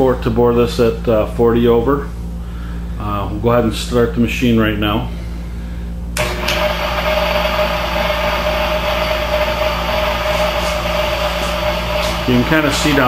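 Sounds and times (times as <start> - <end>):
boring bar motor whining: 6.2 - 13.0.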